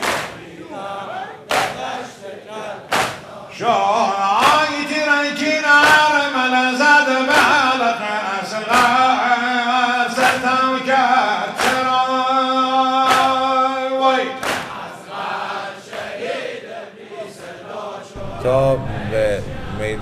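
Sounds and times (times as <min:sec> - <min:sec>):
hands slapping chests: 0:00.0 - 0:00.5, 0:01.5 - 0:01.9, 0:02.9 - 0:03.3, 0:05.8 - 0:06.1, 0:08.7 - 0:09.0, 0:11.6 - 0:12.0, 0:13.0 - 0:13.5, 0:14.4 - 0:14.8
men chanting in unison: 0:00.0 - 0:20.0.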